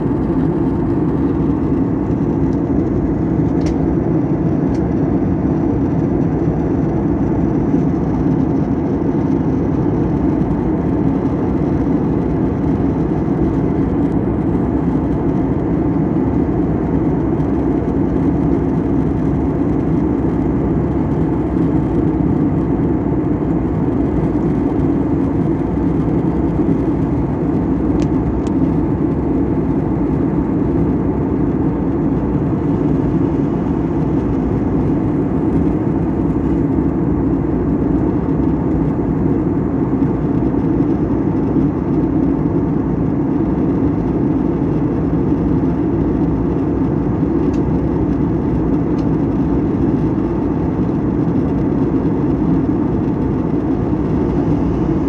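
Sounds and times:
jet engines droning: 0.0s - 55.0s.

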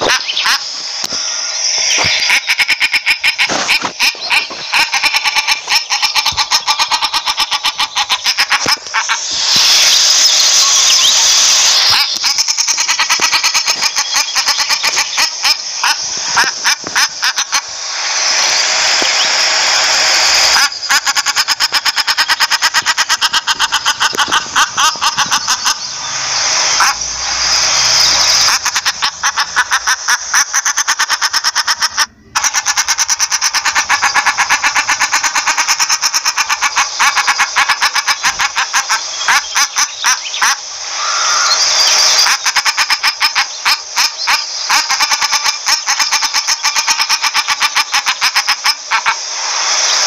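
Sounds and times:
shelduck calling: 0.0s - 49.2s.

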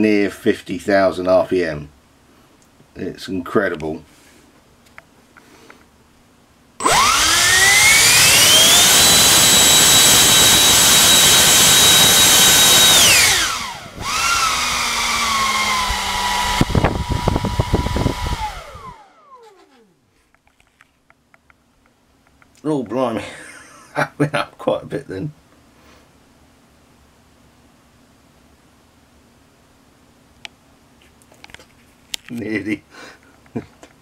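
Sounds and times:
electric ducted fan whining: 0.0s - 34.0s.

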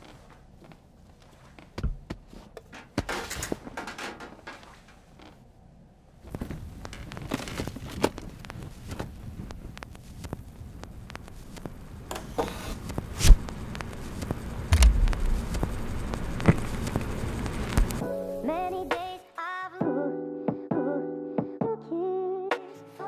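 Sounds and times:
record clicks and crackle: 6.3s - 18.0s
steady low rumble: 13.0s - 18.0s
dull thumps: 14.7s - 17.0s.

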